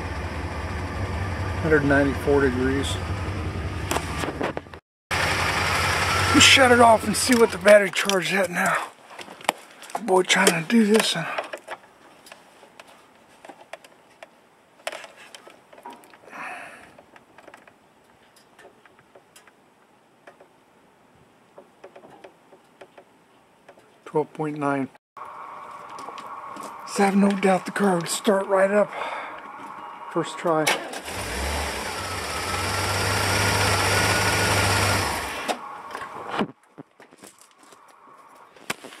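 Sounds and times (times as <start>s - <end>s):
car engine idling: 5.1s - 7.8s, 25.2s - 30.1s.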